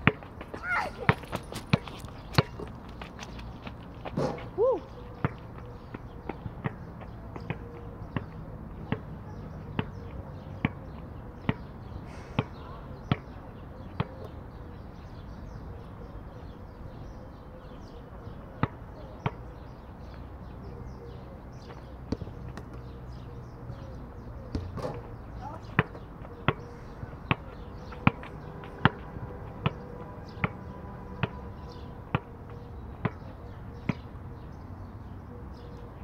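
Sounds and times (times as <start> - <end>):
basketball bouncing: 0.0 - 2.7, 27.3 - 29.0.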